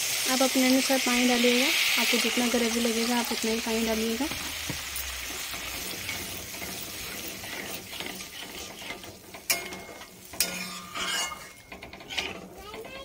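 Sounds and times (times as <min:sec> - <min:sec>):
mixture sizzling: 0:00.0 - 0:13.0
metal spatula scraping pan: 0:05.2 - 0:13.0.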